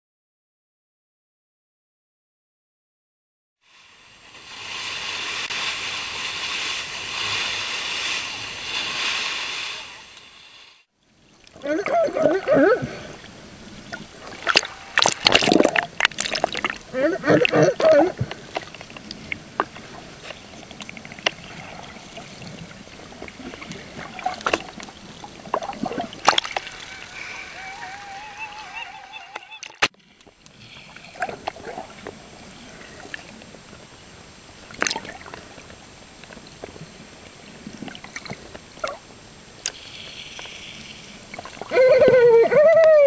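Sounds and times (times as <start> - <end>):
water sloshing: 11.4 - 27.2.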